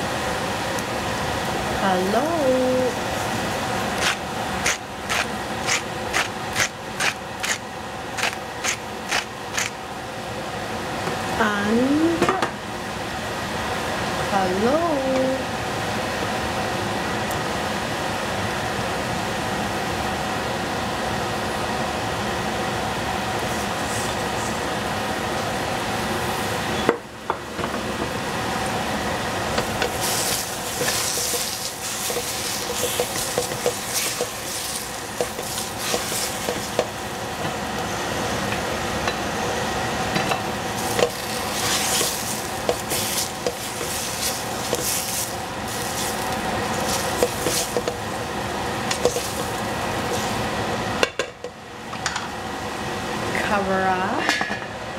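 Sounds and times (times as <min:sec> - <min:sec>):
fan hum: 0:00.0 - 0:54.9
food sizzling in a frying pan: 0:29.6 - 0:37.3, 0:40.6 - 0:51.0
spatula scraping a pan: 0:29.8 - 0:36.8.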